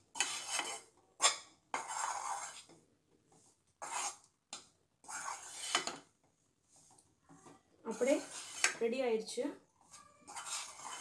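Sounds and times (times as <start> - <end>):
utensil scraping steel tray: 0.1 - 2.7, 3.8 - 4.3, 5.0 - 6.0, 7.9 - 8.9, 9.8 - 11.0.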